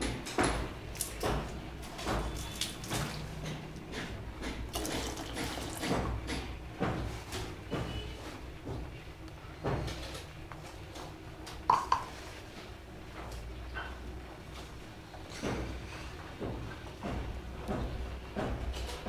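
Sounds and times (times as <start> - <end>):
cup and pan knocking: 11.7 - 12.1.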